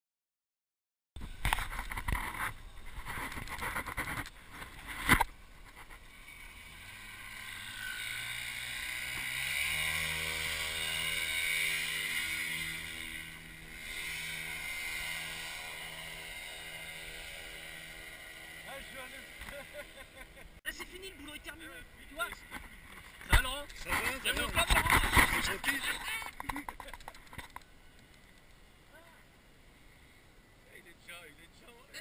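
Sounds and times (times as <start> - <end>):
propeller whirr: 1.2 - 20.1
two-stroke engine throttling up: 6.1 - 19.0.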